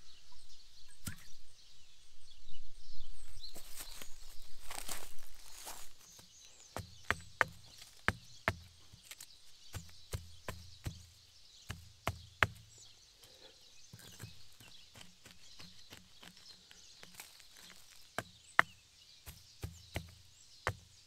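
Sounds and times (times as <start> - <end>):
sharp knocks and taps: 6.7 - 12.7, 13.9 - 20.9.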